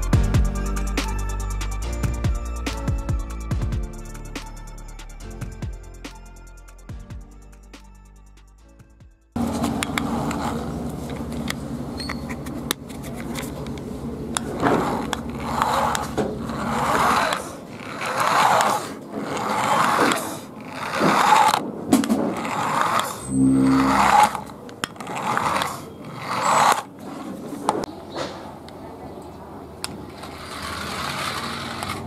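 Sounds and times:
toy car motor whirring: 9.8s - 13.6s, 14.3s - 27.3s, 30.1s - 32.0s
short buzzing tone: 23.2s - 24.6s.

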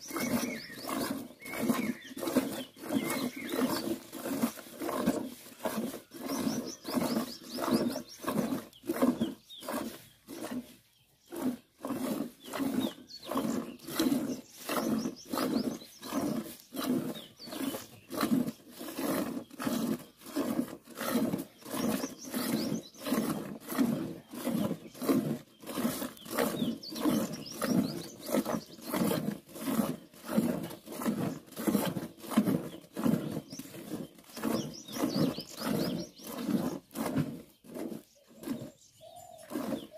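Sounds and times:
milk squirting into steel bucket: 0.1s - 38.7s.

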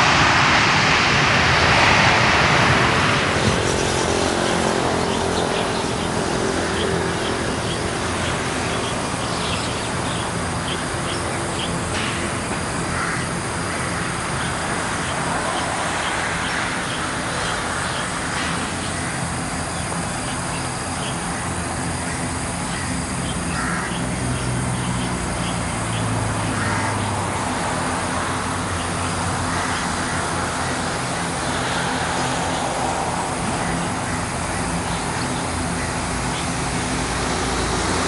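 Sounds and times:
jet engine roar: 0.0s - 38.0s
crows cawing: 12.7s - 14.6s, 22.0s - 24.5s, 26.3s - 27.6s, 28.8s - 37.0s.

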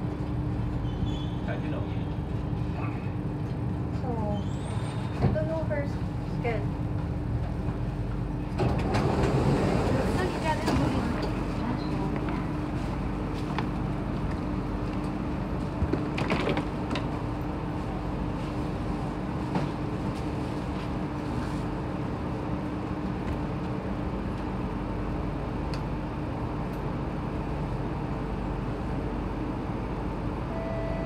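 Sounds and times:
station platform hum: 0.0s - 0.8s, 1.5s - 4.4s, 5.0s - 31.0s
even tone: 30.5s - 31.0s.

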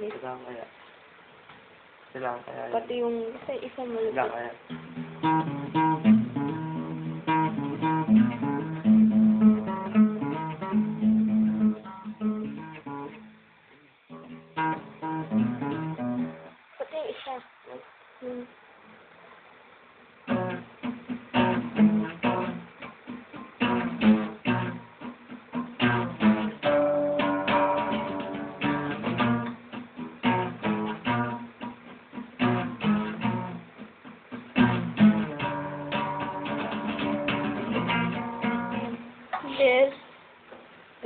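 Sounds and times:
acoustic guitar strumming: 4.2s - 16.6s, 20.2s - 39.3s.

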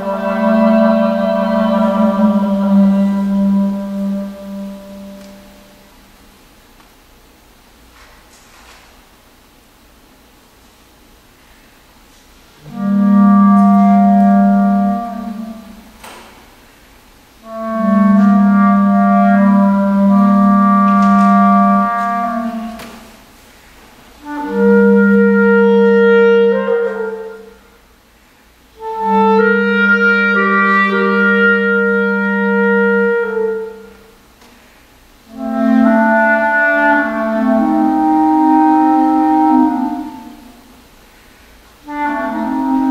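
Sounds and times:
solo clarinet playing: 0.0s - 5.9s, 12.5s - 16.3s, 17.4s - 23.3s, 24.2s - 27.8s, 28.7s - 34.2s, 35.3s - 40.8s, 41.8s - 42.9s.

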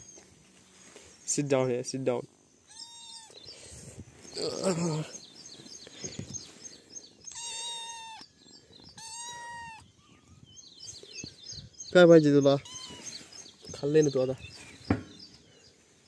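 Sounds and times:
cat meowing: 2.7s - 3.4s, 7.3s - 8.3s, 9.0s - 10.4s, 12.6s - 13.2s
faint high chirps: 4.3s - 15.3s.

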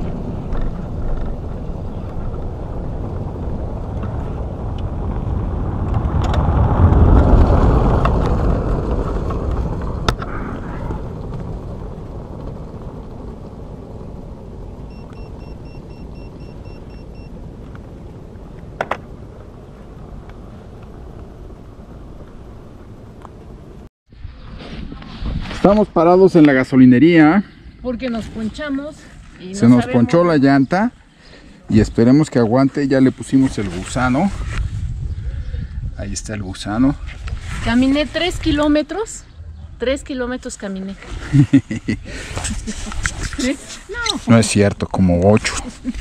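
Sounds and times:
road vehicle rumble: 0.0s - 25.8s, 37.0s - 46.0s.

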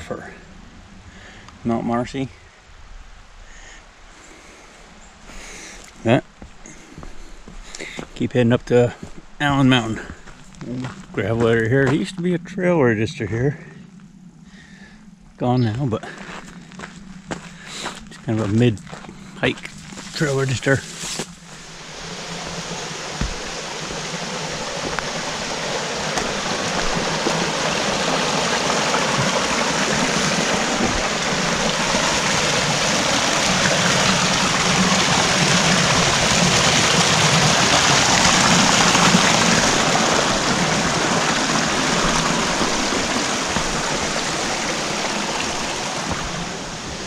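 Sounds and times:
brook rushing over boulders: 22.2s - 47.0s.

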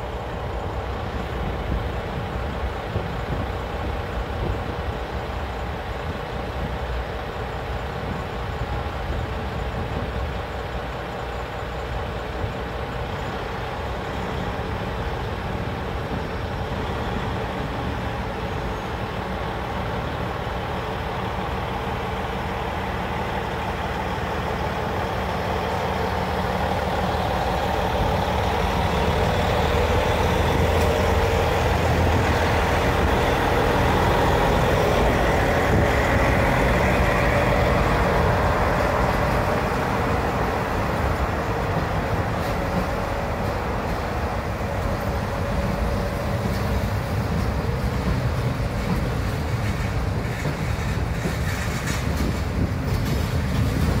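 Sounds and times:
diesel locomotive engine running: 0.0s - 54.0s
train coaches rolling past: 0.0s - 54.0s.

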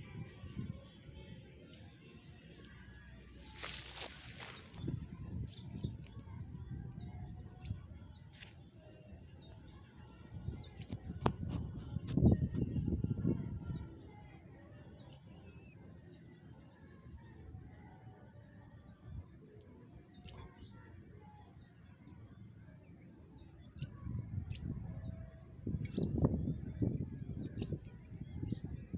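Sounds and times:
small birds chirping: 3.2s - 12.7s
low rumbling on microphone: 10.3s - 13.9s.

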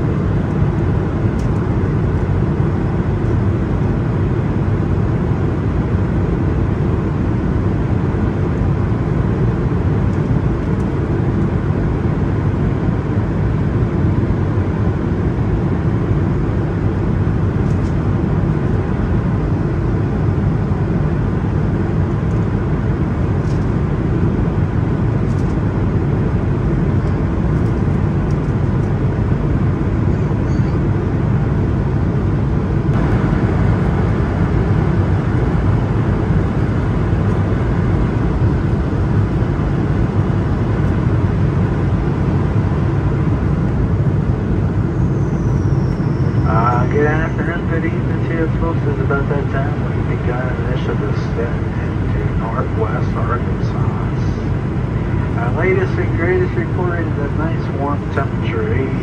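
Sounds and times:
airplane cabin drone: 0.0s - 59.0s.

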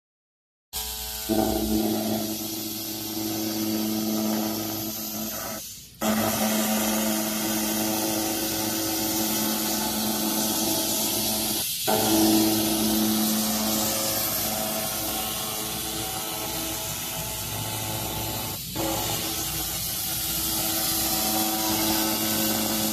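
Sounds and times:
laser cleaner hissing and humming: 0.8s - 22.9s.

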